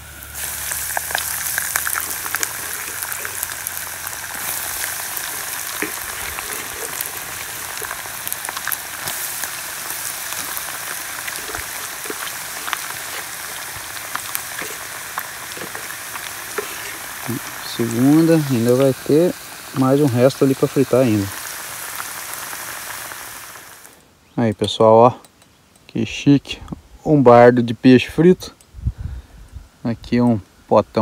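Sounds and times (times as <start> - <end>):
fish sizzling in hot oil: 0.0 - 24.0.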